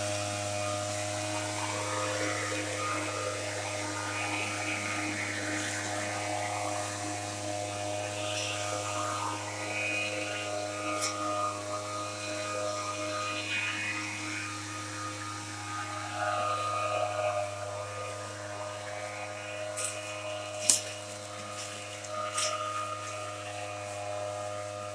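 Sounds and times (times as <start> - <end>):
small engine running: 0.0 - 24.9
footsteps rustling dry leaves: 15.3 - 24.9.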